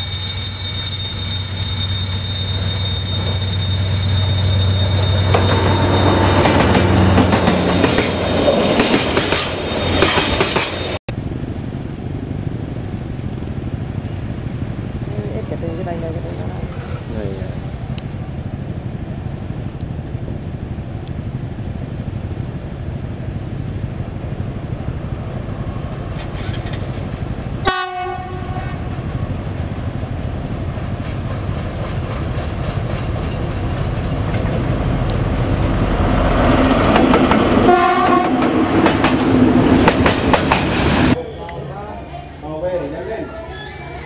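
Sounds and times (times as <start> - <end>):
diesel locomotive engine running: 0.0 - 43.0
train passing close: 0.0 - 44.0
train horn: 27.6 - 29.0, 37.6 - 38.5.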